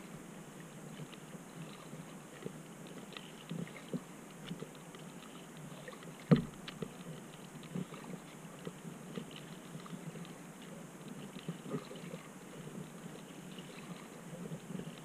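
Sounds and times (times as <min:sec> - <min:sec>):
water lapping at a kayak: 0:00.0 - 0:15.0.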